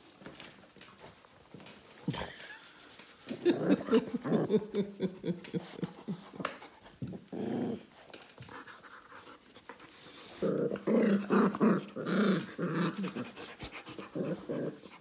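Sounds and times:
puppies panting: 0.4 - 10.4, 12.9 - 15.0
puppies growling: 3.2 - 15.0.

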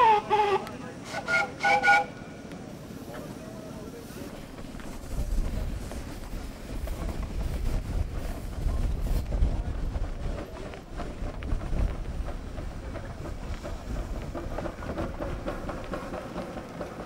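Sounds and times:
steam engines driving on gravel: 0.0 - 17.0
wind buffeting microphone: 4.6 - 16.9.

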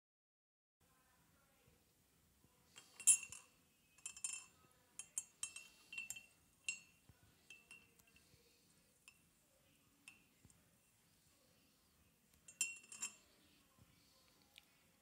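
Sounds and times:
teaspoon clinking against cup: 2.8 - 8.2, 12.5 - 13.2.

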